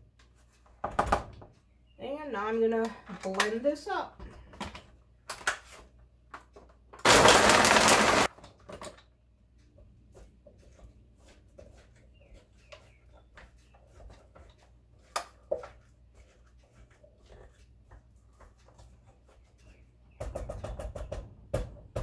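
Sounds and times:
blender running: 7.0s - 8.3s.

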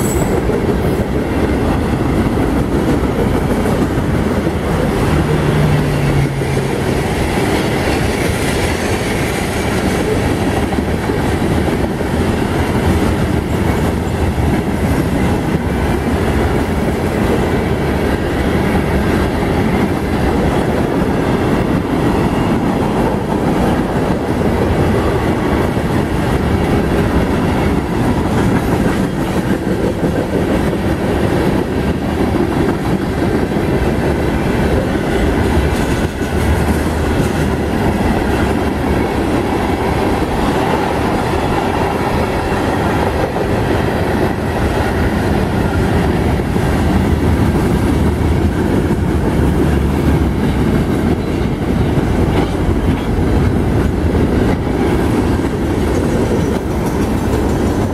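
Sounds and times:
train wheels rumbling on rails: 0.0s - 57.9s
wheels clicking over rail joints: 23.0s - 57.9s.

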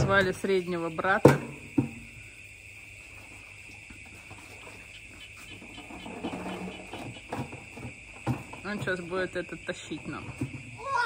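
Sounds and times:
plastic buckets knocking: 0.0s - 0.4s, 1.0s - 2.1s, 5.5s - 10.8s
night insects buzzing: 0.0s - 11.0s.

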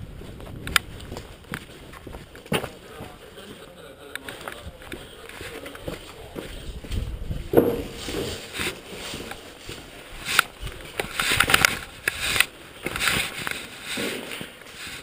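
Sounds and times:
footsteps on gritty concrete: 0.0s - 15.0s.

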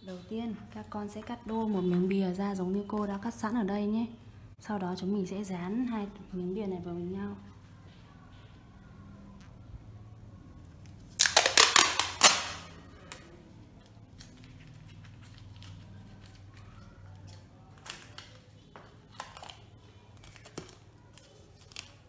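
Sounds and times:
tape pulled off roll crackling: 11.1s - 13.2s.

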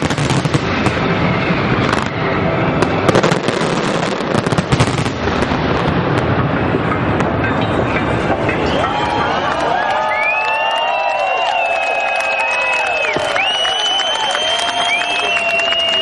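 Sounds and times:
fireworks bangs and crackling: 0.0s - 10.8s, 13.0s - 16.0s.

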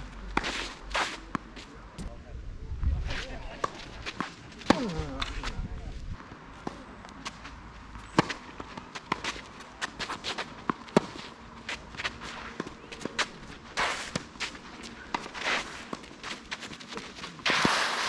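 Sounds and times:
footsteps on court: 0.2s - 2.1s, 6.6s - 17.9s
shoe scuffs on court: 0.3s - 1.7s, 9.0s - 18.0s
tennis ball bouncing: 6.3s - 17.8s
racket striking tennis ball: 8.0s - 11.4s, 12.0s - 18.0s.

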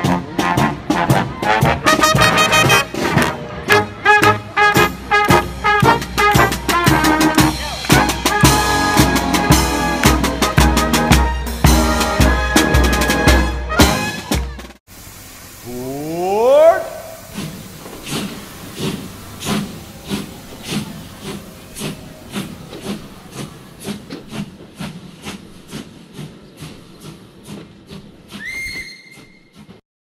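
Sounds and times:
steady hiss: 14.9s - 28.4s
monorail drive whine: 16.8s - 28.9s.

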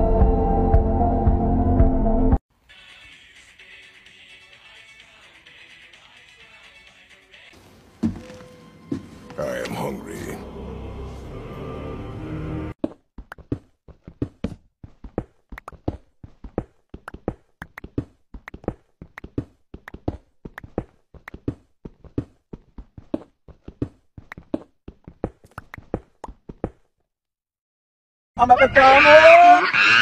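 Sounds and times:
footsteps on stone: 7.6s - 9.4s, 12.8s - 26.9s.

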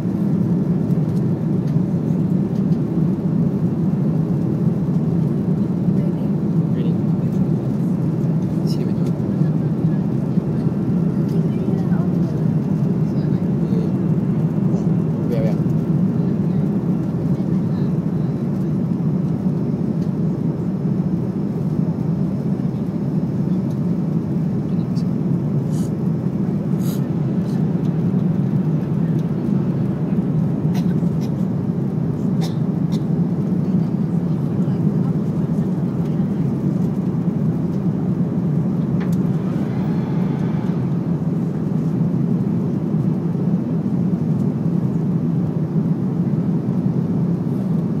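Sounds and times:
jet engines droning in cabin: 0.0s - 48.0s
rushing air: 38.8s - 42.5s.

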